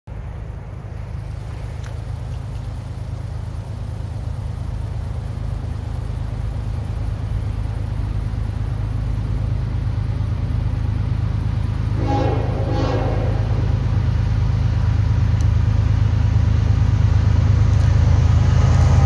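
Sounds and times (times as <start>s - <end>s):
diesel locomotive rumble: 0.1s - 19.0s
train horn: 11.9s - 14.0s.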